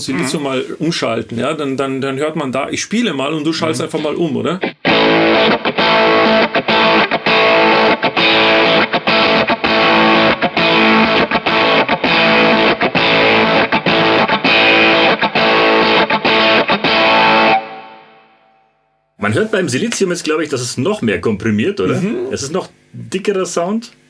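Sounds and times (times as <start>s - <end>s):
fuzz electric guitar chords: 4.7s - 18.2s.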